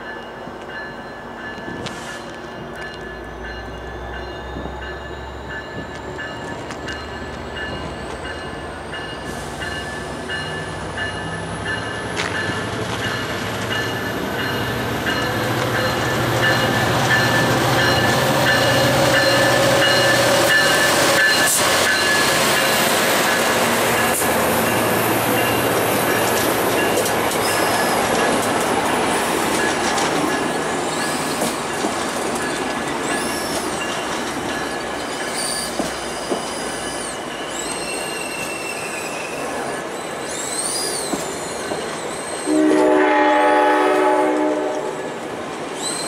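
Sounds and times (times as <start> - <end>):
passing train rumble: 0.0 - 46.0
faint rising whistle: 3.3 - 6.5, 35.4 - 42.6.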